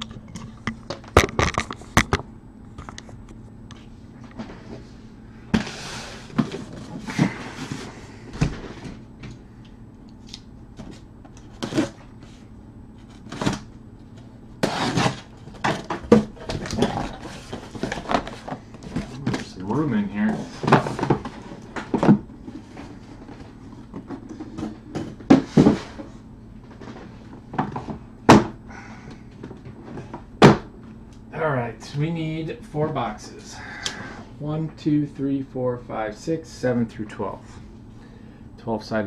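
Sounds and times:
cardboard scraping and rustling: 14.6 - 24.8.

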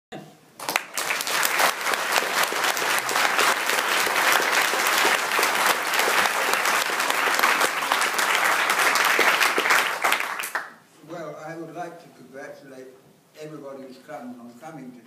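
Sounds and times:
audience applauding: 0.6 - 10.8.

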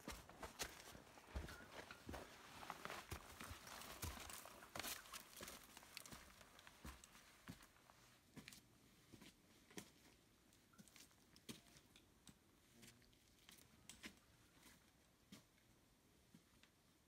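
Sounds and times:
boots stepping on rocky trail: 0.0 - 7.8.

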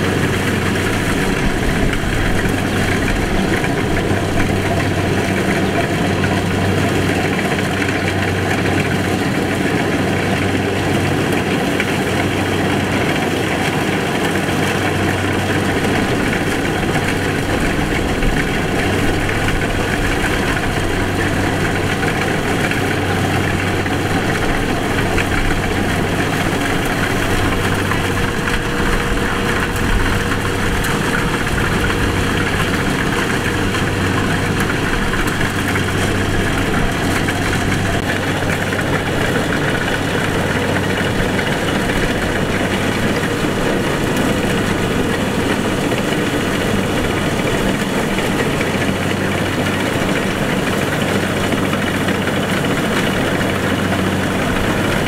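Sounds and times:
cutting and threshing machinery: 0.0 - 55.0
diesel engine hum: 0.0 - 55.0.

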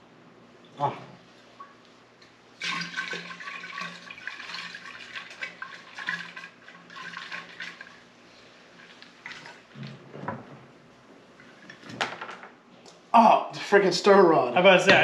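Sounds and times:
liquid pouring into a fermenter: 2.5 - 10.6.

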